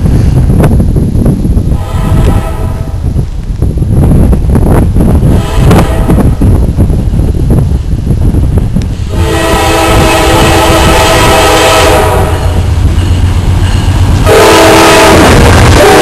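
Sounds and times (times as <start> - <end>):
train rumble: 0.0 - 16.0
locomotive air horn: 1.7 - 3.0, 5.3 - 6.4, 9.1 - 12.7, 14.2 - 16.0.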